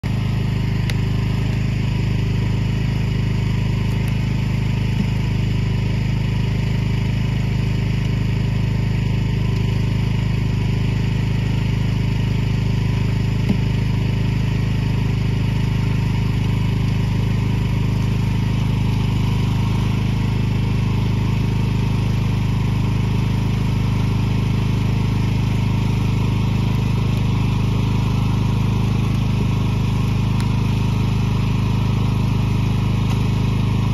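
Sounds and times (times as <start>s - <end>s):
engine idling low hum: 0.0s - 33.9s.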